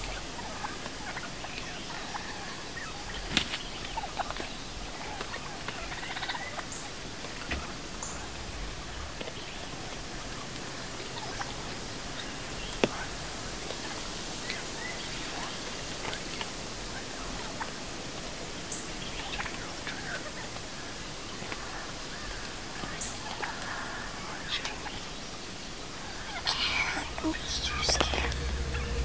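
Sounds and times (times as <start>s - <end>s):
turkeys calling: 0.0s - 13.1s, 19.0s - 25.1s
outdoor hiss: 0.0s - 29.0s.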